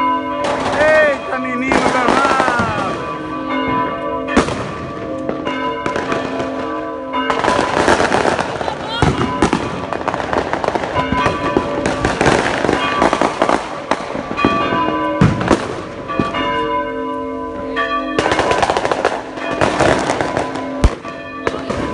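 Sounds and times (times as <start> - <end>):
church bells ringing: 0.0 - 21.9
fireworks crackling and popping: 0.4 - 3.1, 7.3 - 16.4, 18.2 - 21.9
loud firework bang: 4.4 - 5.0, 7.4 - 16.4.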